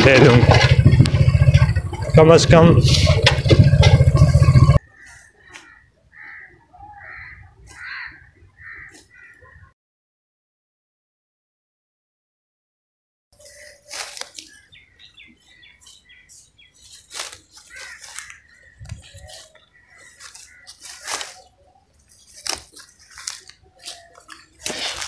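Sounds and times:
birds chirping: 0.0s - 9.7s, 13.4s - 25.0s
grass being cut by hand: 13.4s - 14.6s, 16.9s - 21.5s, 22.1s - 25.0s.

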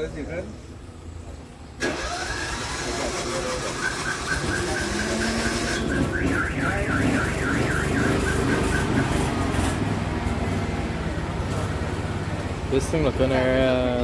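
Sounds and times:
car alarm beeping and warbling: 3.3s - 9.3s.

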